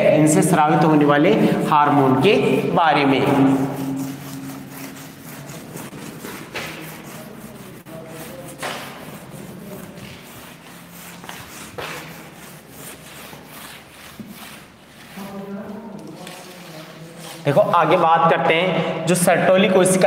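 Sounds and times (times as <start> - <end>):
eraser rubbing on blackboard: 1.8 - 15.5.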